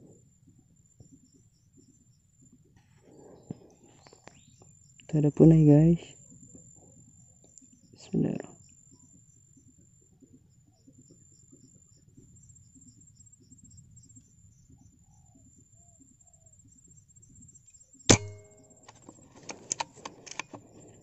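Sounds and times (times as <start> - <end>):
insects droning: 0.0 - 21.0
gunshot: 18.1 - 18.6
clicks and rattles: 18.1 - 21.0.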